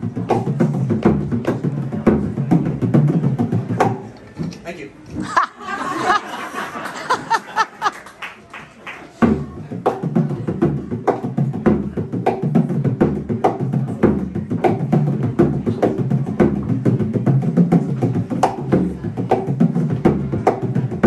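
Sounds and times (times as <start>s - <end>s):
frame drum played with a tipper: 0.0s - 4.5s, 9.2s - 21.0s
people talking and laughing: 0.0s - 21.0s.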